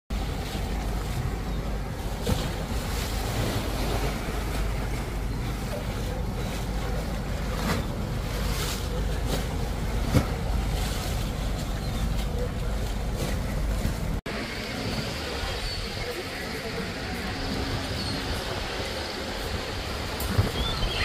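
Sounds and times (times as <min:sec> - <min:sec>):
waves lapping against seawall: 0:00.1 - 0:21.0.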